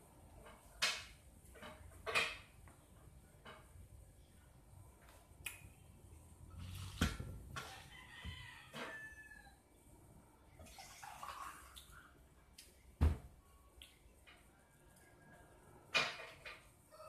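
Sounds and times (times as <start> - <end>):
rooster crowing: 7.6 - 9.6.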